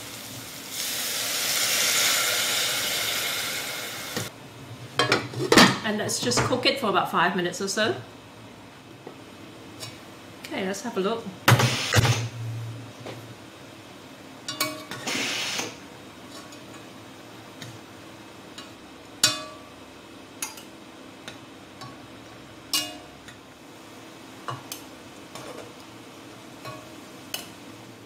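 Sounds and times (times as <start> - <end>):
metal tongs clinking on pan: 22.7 - 23.1.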